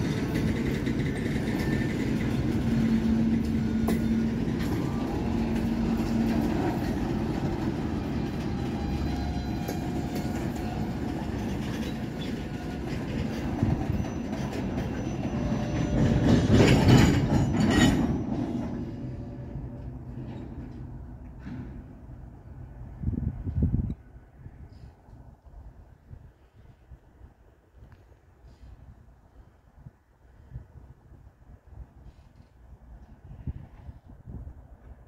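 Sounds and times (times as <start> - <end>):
rail clacks: 0.0 - 22.1
train wheels rumbling on rail: 0.0 - 27.8, 31.7 - 35.0.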